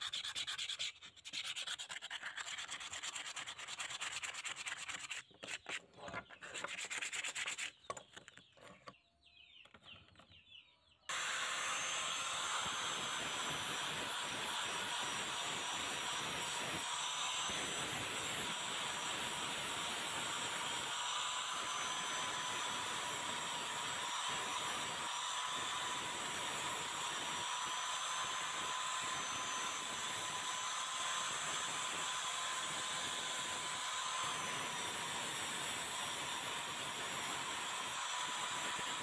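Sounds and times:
angle grinder grinding steel: 11.1s - 39.0s.

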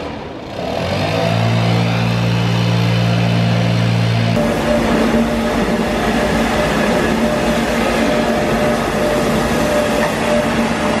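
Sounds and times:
street sweeper brushes rumbling: 0.0s - 11.0s
steady hum: 3.0s - 11.0s.

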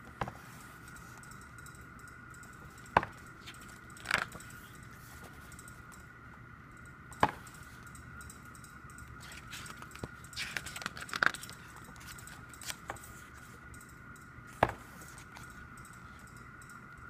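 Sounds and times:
faint high whine: 0.0s - 17.0s
photobook pages turning: 9.2s - 13.6s.

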